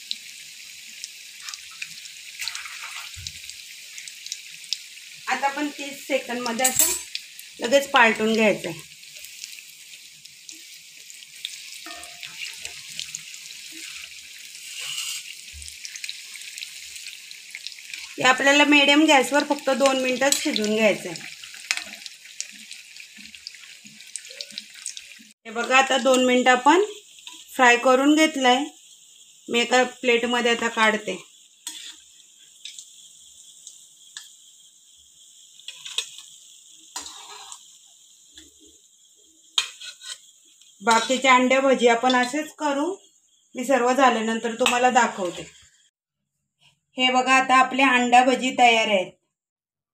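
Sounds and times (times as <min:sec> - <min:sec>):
food sizzling in hot oil: 0:00.0 - 0:46.0
steel spoon knocking pan: 0:11.8 - 0:12.5.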